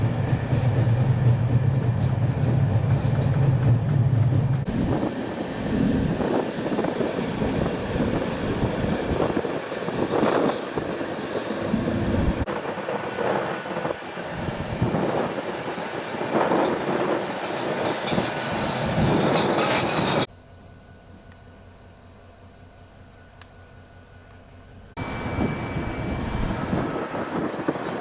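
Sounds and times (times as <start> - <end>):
train wheels rumbling on track: 0.0 - 20.3, 23.2 - 28.0
high wheel squeal: 4.6 - 10.6, 12.4 - 20.3, 25.0 - 28.0.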